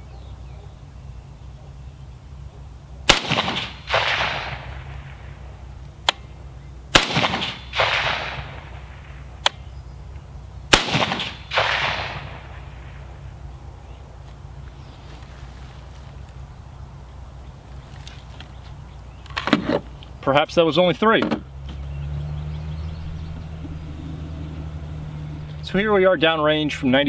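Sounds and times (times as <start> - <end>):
rifle shots: 3.0 - 5.4, 6.9 - 9.6, 10.7 - 13.2
softer echoing report: 22.6 - 27.0.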